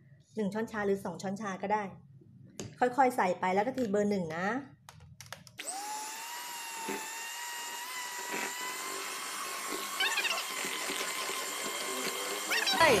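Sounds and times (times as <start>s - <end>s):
hand mixer motor whining: 5.6s - 13.0s.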